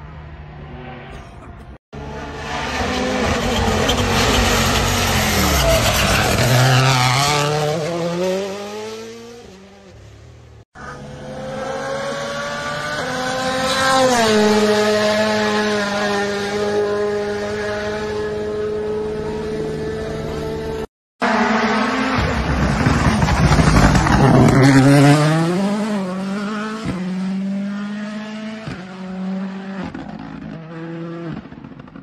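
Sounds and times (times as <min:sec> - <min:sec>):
rally car engine accelerating: 0:02.0 - 0:10.0, 0:10.8 - 0:32.0.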